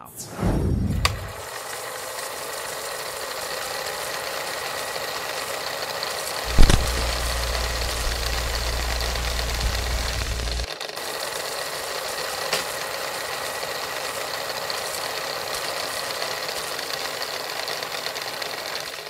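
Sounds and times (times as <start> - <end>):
film projector whirring rattle: 1.0 - 19.0
hiss and crackle: 6.5 - 10.7
sharp click: 6.5 - 10.7.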